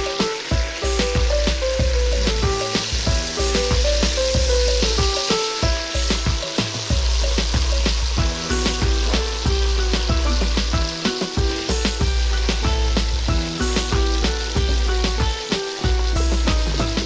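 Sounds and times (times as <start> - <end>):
background music with deep bass: 0.0 - 17.0
meat sizzling in oil: 0.0 - 17.0.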